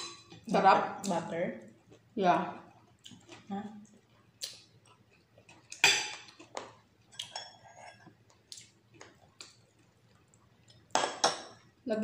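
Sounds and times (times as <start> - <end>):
cutlery clinking on a plate: 5.8 - 6.4.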